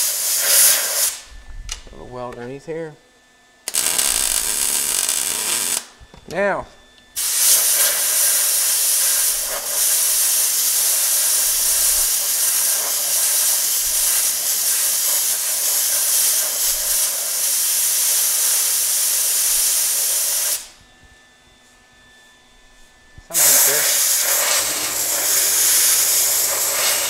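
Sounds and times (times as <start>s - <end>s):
air blow gun hissing: 0.0s - 1.3s, 7.2s - 20.8s, 23.3s - 27.0s.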